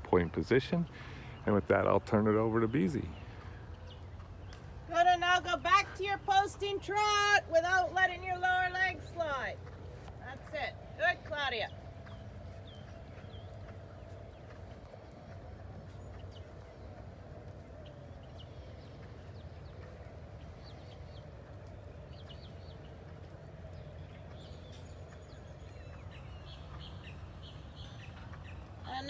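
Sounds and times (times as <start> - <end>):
small birds chirping: 0.0 - 29.0
steady low rumble: 8.0 - 28.9.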